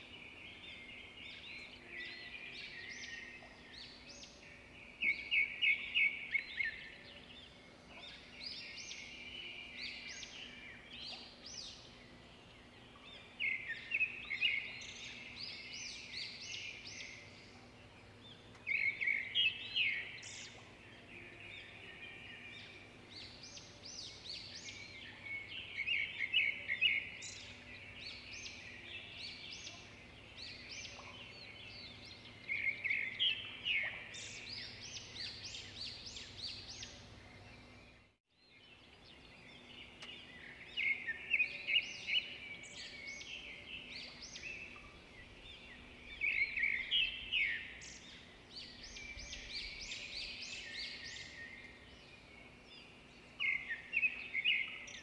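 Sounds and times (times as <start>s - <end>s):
birds chirping and twittering: 0.0s - 55.0s.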